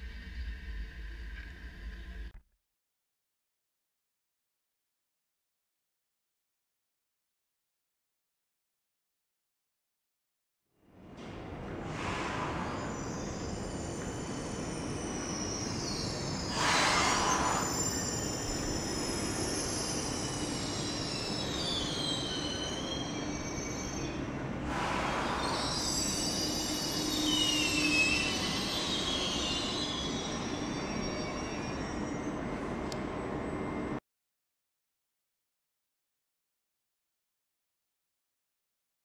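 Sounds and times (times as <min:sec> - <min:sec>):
train low hum: 0:10.8 - 0:34.0
train wheels squealing: 0:11.8 - 0:34.0
bursts of hissing: 0:16.5 - 0:17.8.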